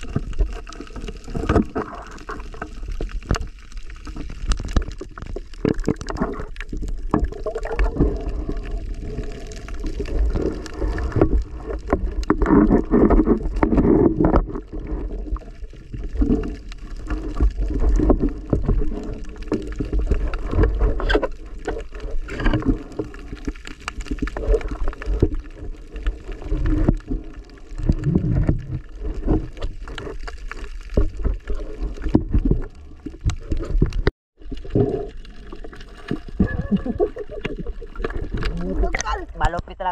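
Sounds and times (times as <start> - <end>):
low underwater rumble: 0.0 - 39.9
water gurgling and sloshing: 0.0 - 39.9.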